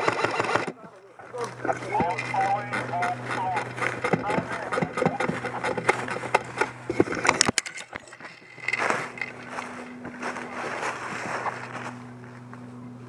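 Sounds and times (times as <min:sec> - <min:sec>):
footsteps crackling through dry brush: 0:00.9 - 0:12.9
leaves rustling: 0:08.1 - 0:12.8.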